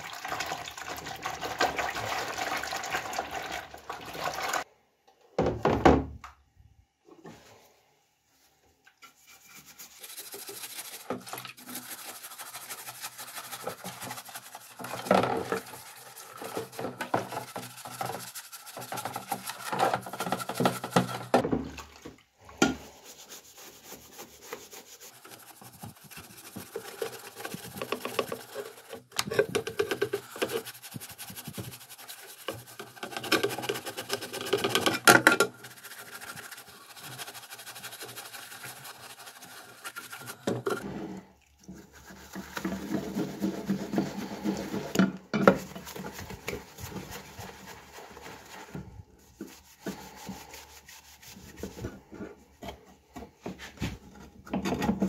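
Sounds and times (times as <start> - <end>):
paintbrush scrubbing in soapy water: 9.0 - 21.9, 22.8 - 52.2.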